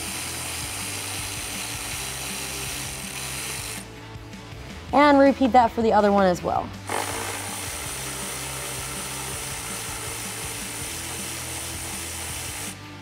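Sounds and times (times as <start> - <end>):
power tool spinning socket: 0.0 - 3.8.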